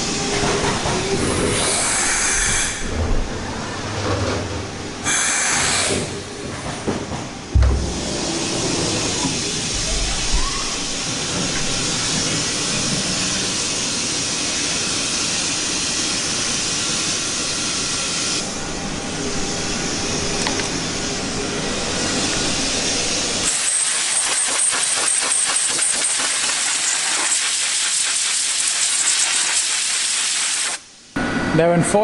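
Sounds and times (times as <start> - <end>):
milling machine air hiss: 0.0 - 3.0, 5.0 - 6.4, 7.5 - 31.1
dull knock: 7.6 - 8.3.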